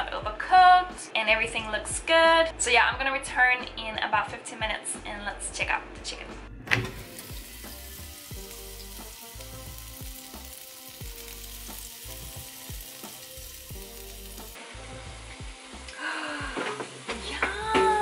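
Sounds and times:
background music with bass: 0:00.0 - 0:18.0
chicken sizzling: 0:06.7 - 0:18.0.

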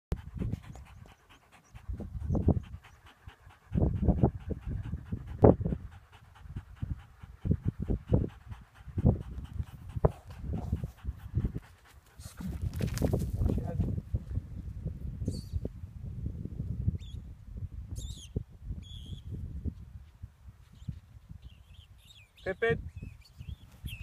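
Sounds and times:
dog panting: 0:00.1 - 0:13.9.

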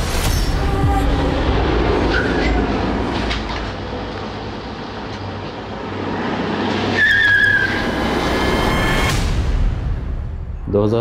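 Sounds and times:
high squeal: 0:06.8 - 0:09.1.

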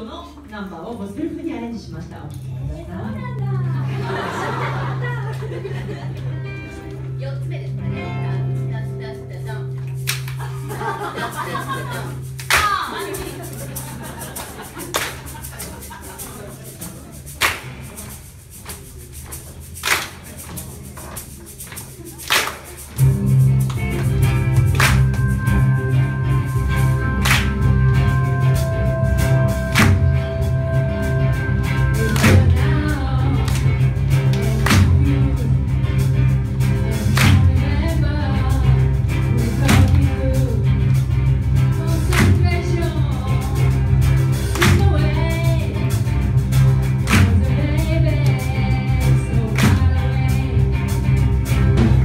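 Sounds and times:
instrumental backing with bass line: 0:02.2 - 0:52.0
song playing: 0:03.8 - 0:52.0
sharp percussion hits: 0:10.0 - 0:35.2.

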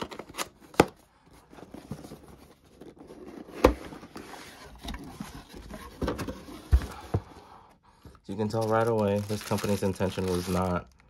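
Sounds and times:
cardboard rustling and scraping: 0:01.4 - 0:07.4.

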